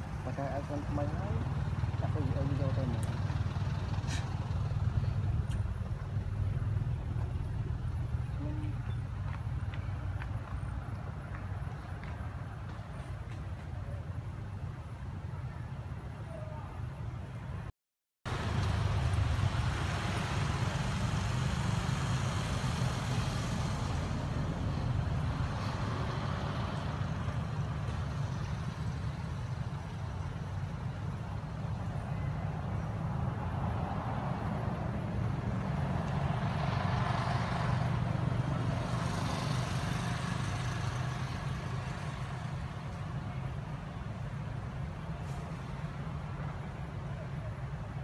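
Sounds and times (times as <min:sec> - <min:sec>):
low outdoor rumble: 0:00.0 - 0:17.7.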